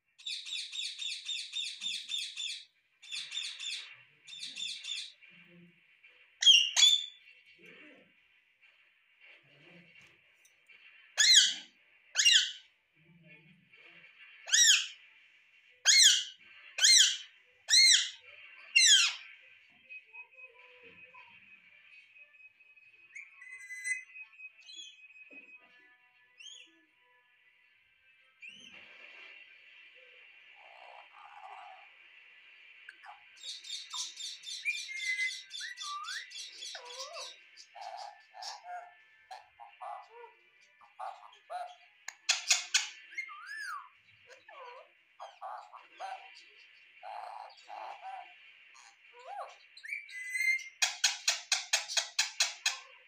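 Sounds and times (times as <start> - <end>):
parakeet calls: 0.2 - 5.2, 6.4 - 7.2, 11.2 - 12.7, 14.4 - 15.0, 15.8 - 19.4, 23.1 - 25.0, 29.9 - 53.0.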